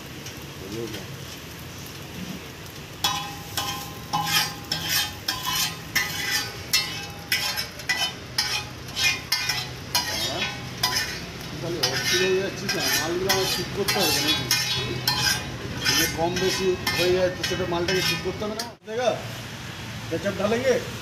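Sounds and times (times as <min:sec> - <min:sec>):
metal spatula scraping griddle: 0:03.0 - 0:18.8.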